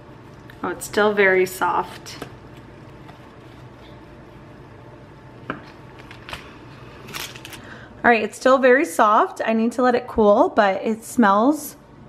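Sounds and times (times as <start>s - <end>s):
crust and paper crackling: 6.0s - 7.6s.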